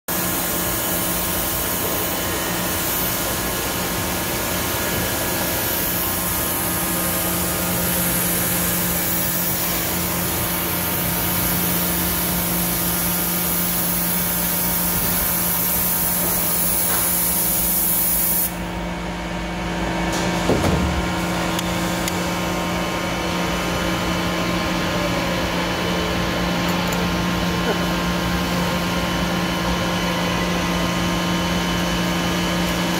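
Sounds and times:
loud hiss: 0:00.1 - 0:18.6
brief thump: 0:20.1 - 0:21.2.

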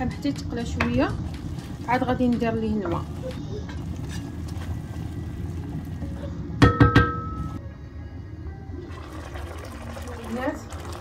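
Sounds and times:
meat and onions frying: 0:00.0 - 0:06.6.

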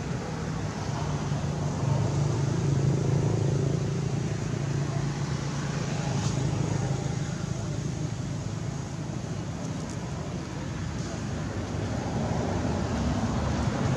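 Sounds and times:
low engine rumble: 0:00.0 - 0:13.9.

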